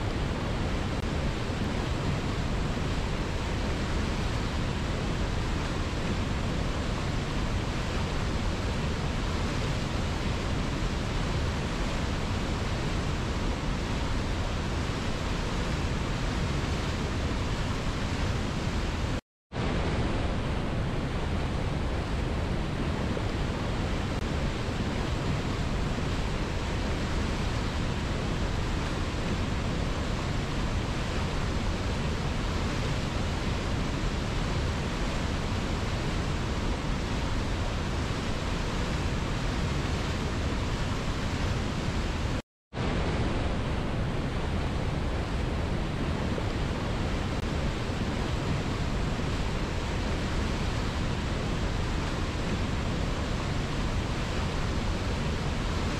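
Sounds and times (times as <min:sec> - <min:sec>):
river rushing over rocks: 0:00.0 - 0:55.9.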